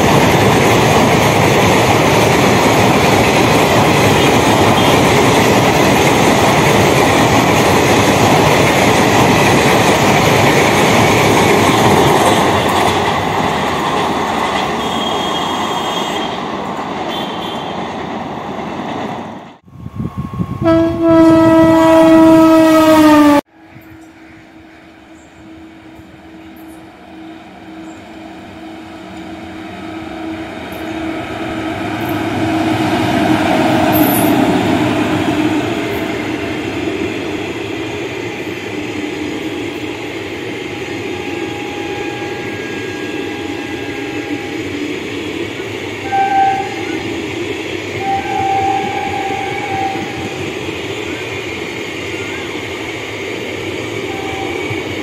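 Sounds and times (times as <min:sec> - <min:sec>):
train coaches rolling and clattering: 0:00.0 - 0:19.6, 0:25.3 - 0:55.0
train horn blast: 0:04.2 - 0:05.1, 0:14.8 - 0:16.4, 0:20.4 - 0:31.1, 0:40.7 - 0:44.6, 0:46.0 - 0:47.0, 0:48.0 - 0:50.3, 0:54.0 - 0:54.8
locomotive passing at speed: 0:26.4 - 0:55.0.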